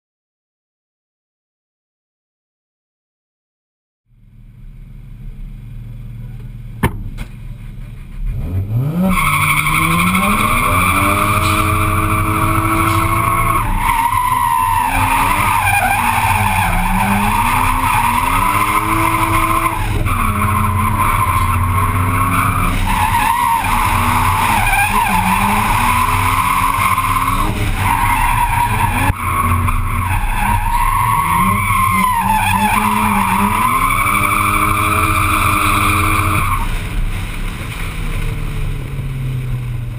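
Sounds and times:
car engine revving hard: 8.2 - 39.9
tyres squealing: 9.0 - 37.1.

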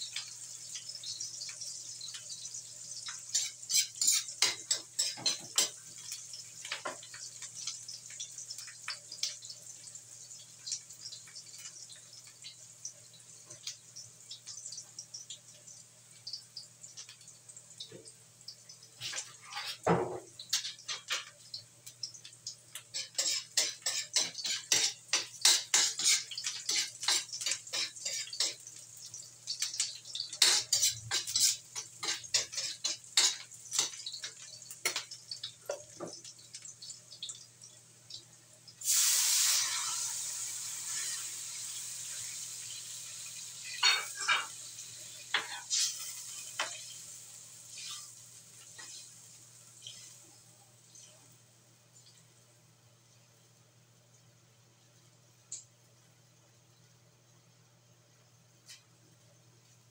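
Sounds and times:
liquid sizzling in hot wok: 0.0 - 53.5
metal spatula scraping wok: 3.3 - 5.4, 19.0 - 19.9, 22.9 - 28.6, 30.4 - 33.9, 40.8 - 41.4, 45.3 - 46.8.

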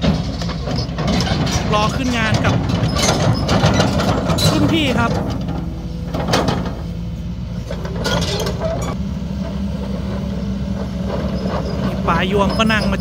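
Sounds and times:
diesel engine running: 0.0 - 13.0
excavator tracks on asphalt: 0.0 - 13.0.

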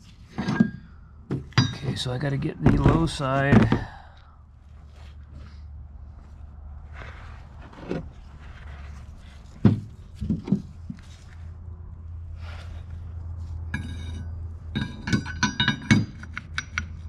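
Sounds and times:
dull knocks of metal parts: 0.3 - 4.1, 9.5 - 11.0, 13.8 - 17.0
ringing metal clinks: 1.6 - 1.9, 13.8 - 16.9.

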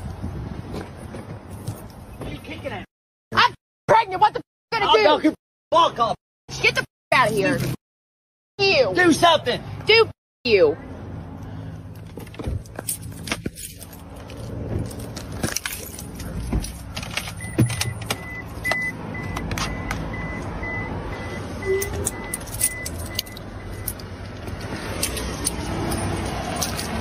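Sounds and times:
phone handling clicks and rattles: 15.2 - 20.1
car warning chime beeping: 17.3 - 24.2.

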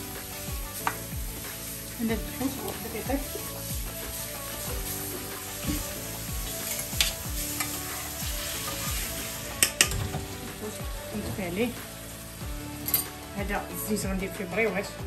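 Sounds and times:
hot oil sizzling in a pan: 0.0 - 15.0.

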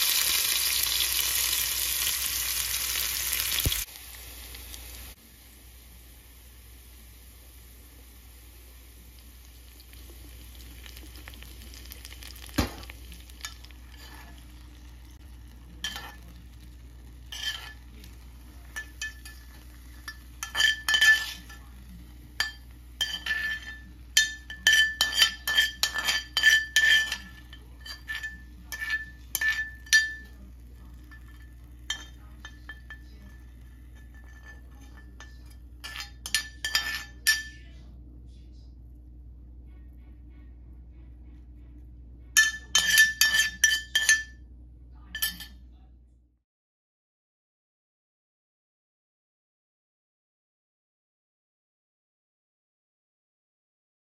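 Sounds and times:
metal spoon scraping a skillet: 9.8 - 37.6, 42.4 - 44.3, 45.2 - 45.6.

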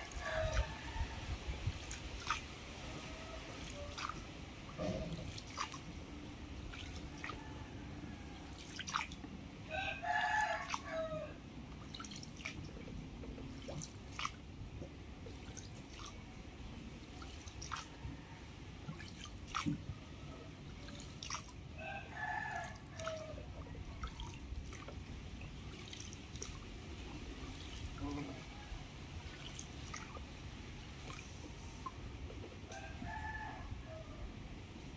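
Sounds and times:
rooster crowing: 0.0 - 1.3, 9.7 - 11.4, 32.7 - 34.2
water dripping and splashing: 0.0 - 33.0.

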